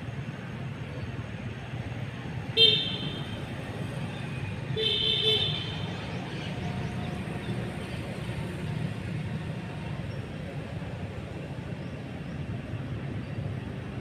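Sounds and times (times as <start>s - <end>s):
vehicle horn honking: 2.6s - 3.4s, 4.8s - 5.8s.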